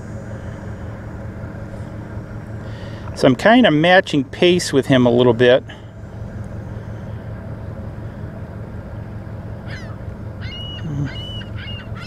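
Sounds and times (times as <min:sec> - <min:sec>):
steady low hum: 0:00.0 - 0:12.0
seagulls squawking: 0:09.6 - 0:12.0.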